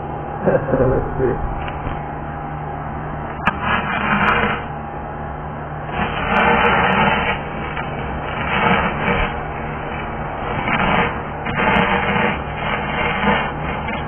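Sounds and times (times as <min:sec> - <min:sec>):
low hum: 0:00.0 - 0:14.0
welding arc crackling and popping: 0:03.3 - 0:04.8, 0:05.8 - 0:14.0.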